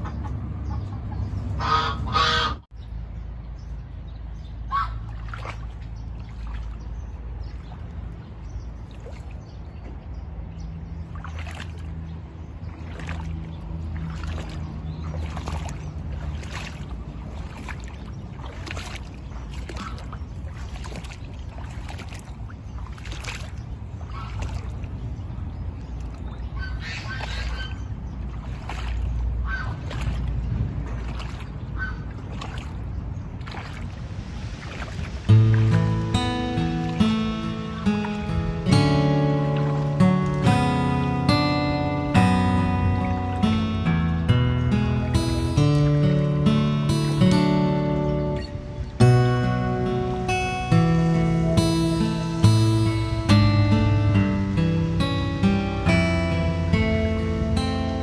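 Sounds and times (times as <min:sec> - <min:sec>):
geese honking: 0:00.0 - 0:02.7, 0:04.7 - 0:05.1, 0:24.1 - 0:24.5, 0:26.6 - 0:27.9, 0:29.4 - 0:29.9, 0:31.8 - 0:32.1.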